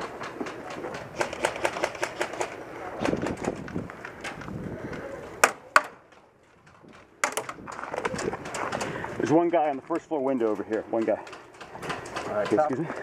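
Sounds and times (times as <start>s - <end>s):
loud sharp cracks: 1.2s - 3.6s.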